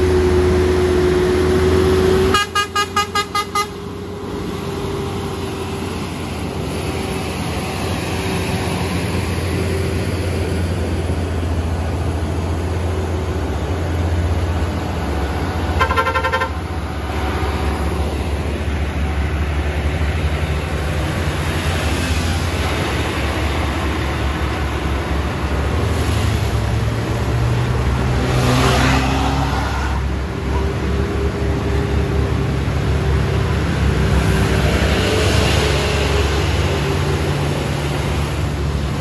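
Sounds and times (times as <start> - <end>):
truck diesel engines running: 0.0 - 39.0
truck horn toot: 2.2 - 3.9, 15.7 - 16.8.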